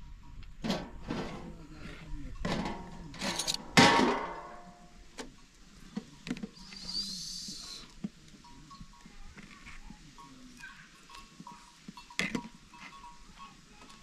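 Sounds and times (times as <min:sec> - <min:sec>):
loud ringing metal clang: 0:02.4 - 0:05.0.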